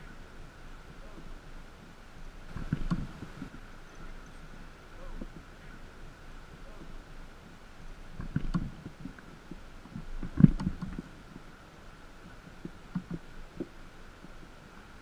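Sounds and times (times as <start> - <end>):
knocks and thumps on boat: 2.5 - 3.5, 8.2 - 11.1.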